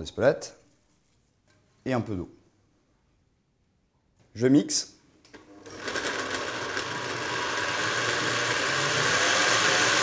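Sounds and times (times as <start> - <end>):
blender motor running: 5.4 - 10.0.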